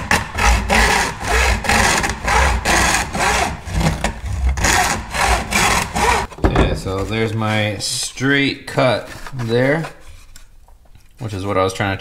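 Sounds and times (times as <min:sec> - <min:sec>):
hand saw cutting plastic: 0:00.0 - 0:06.3.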